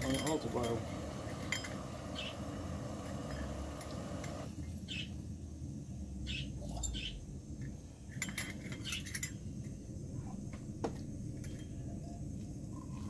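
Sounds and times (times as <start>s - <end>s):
metal cookware clinking: 0.0s - 1.9s
gas stove burner rush: 0.0s - 4.6s.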